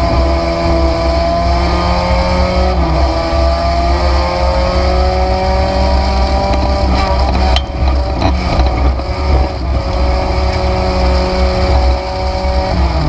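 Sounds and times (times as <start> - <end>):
race car engine accelerating: 0.0 - 13.0
heavy low rumble: 4.5 - 10.9.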